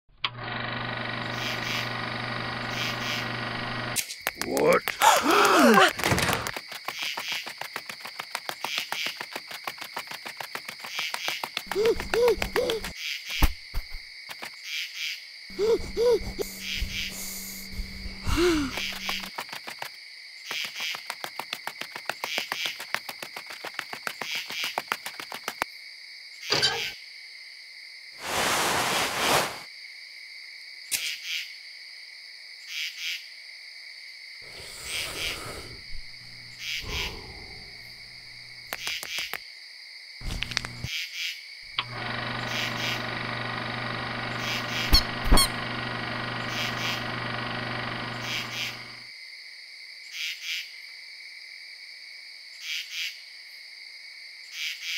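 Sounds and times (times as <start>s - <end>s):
crickets chirping: 0.9s - 54.9s
fast run of clicks: 3.9s - 12.9s, 18.8s - 20.0s, 20.7s - 25.6s, 40.2s - 40.9s
low buzzing hum: 15.5s - 19.3s, 40.2s - 40.9s, 41.8s - 49.0s.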